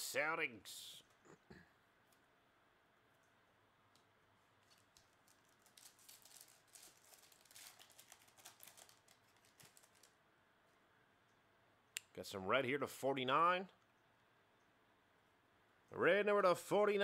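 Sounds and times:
foil wrapper crinkling and tearing: 4.6 - 10.2.

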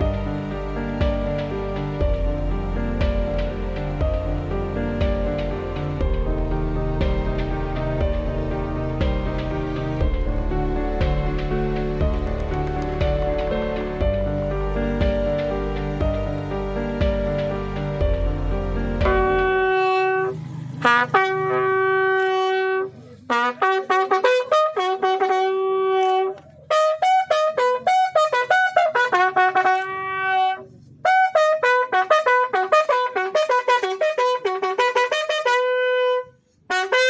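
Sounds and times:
bugle call: 19.1 - 37.0.

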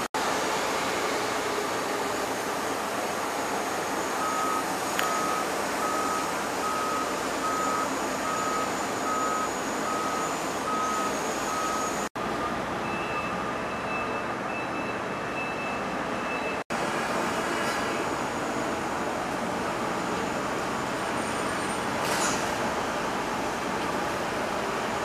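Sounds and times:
trucks and equipment running: 0.0 - 25.0
back-up alarm beeping: 4.1 - 16.6
higher-pitched back-up alarm: 4.1 - 16.6.

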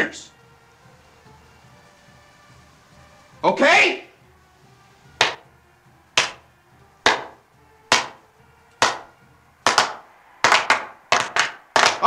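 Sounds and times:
hockey stick slapping puck: 5.2 - 5.4, 6.2 - 6.4, 7.1 - 8.2, 8.8 - 9.1, 9.7 - 12.0.

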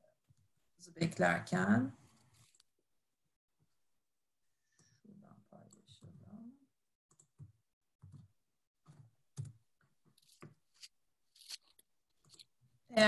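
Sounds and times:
keyboard and mouse clicks: 7.1 - 9.6.

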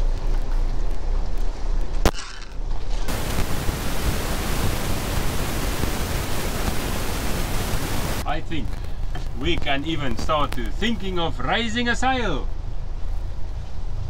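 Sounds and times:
wind noise on microphone: 2.9 - 10.9.

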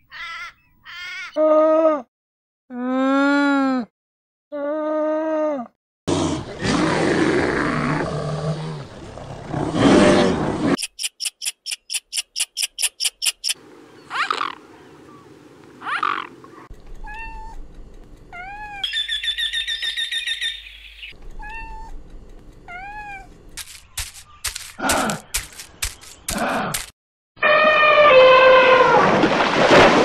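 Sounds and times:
sharp clicks: 10.8 - 13.6, 23.5 - 26.9
short sharp high chirps: 10.8 - 13.6
cats meowing: 17.0 - 17.6, 18.3 - 18.8, 21.4 - 21.9, 22.7 - 23.3.

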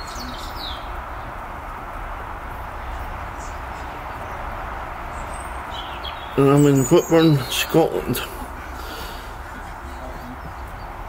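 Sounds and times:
faint bird chirps: 0.0 - 1.0.

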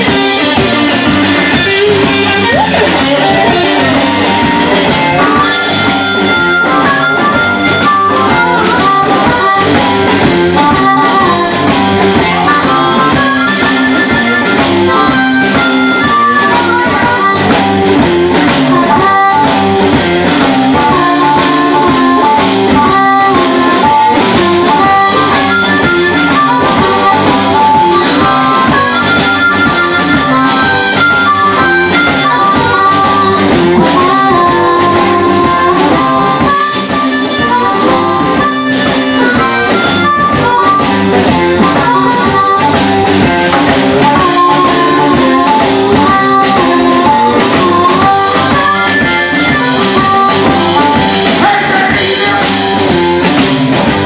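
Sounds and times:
amplified harmonica: 0.0 - 54.0
bass guitar: 0.0 - 54.0
drum kit: 0.0 - 54.0
electric guitar: 0.0 - 54.0.

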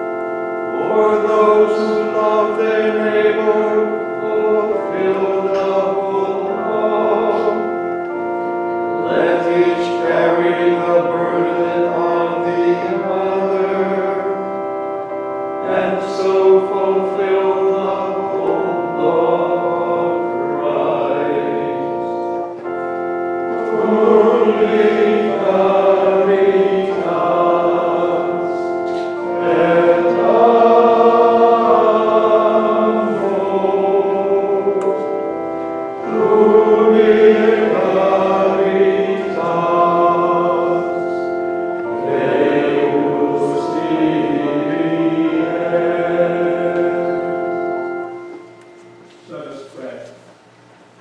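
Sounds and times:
choir of monks singing: 0.0 - 48.8
organ chords: 0.0 - 51.0.

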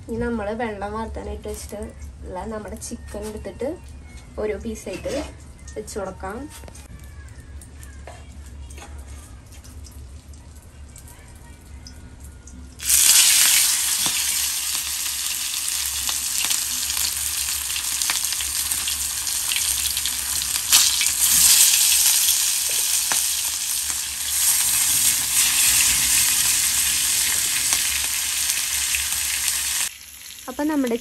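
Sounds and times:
chicken frying in oil: 8.2 - 31.0
oil popping: 12.8 - 30.0.

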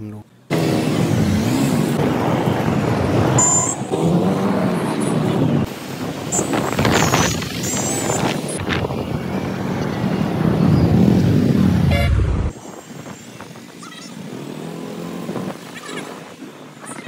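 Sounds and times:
street traffic: 0.0 - 17.0
wind rumble on microphone: 5.1 - 13.9
horn toot: 11.9 - 12.3.

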